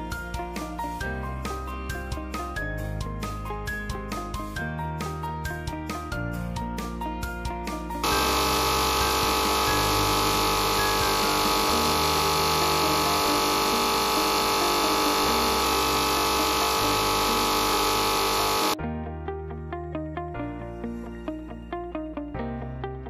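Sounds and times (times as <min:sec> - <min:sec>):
background music with a beat: 0:00.0 - 0:18.8
saw blade whining through stone: 0:08.0 - 0:18.8.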